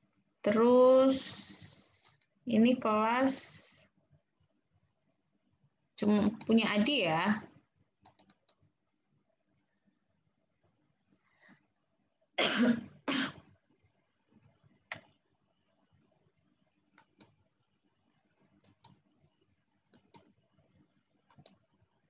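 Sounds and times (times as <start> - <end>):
person coughing: 12.4 - 13.4
faint sharp clicks: 21.3 - 21.6.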